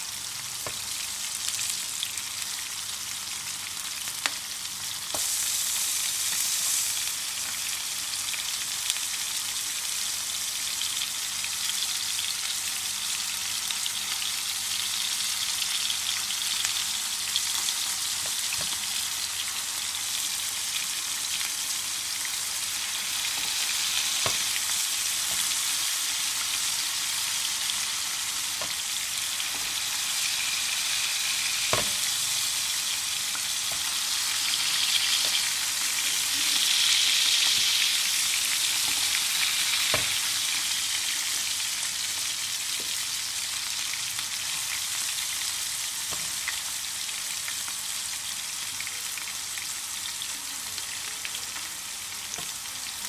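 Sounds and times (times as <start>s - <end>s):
food sizzling in oil: 0.0s - 53.0s.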